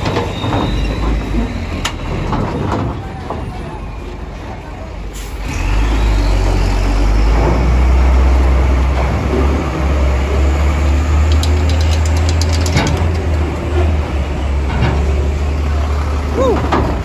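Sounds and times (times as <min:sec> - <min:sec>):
diesel truck engine rumbling: 0:00.0 - 0:17.0
sharp clicks: 0:11.2 - 0:13.6.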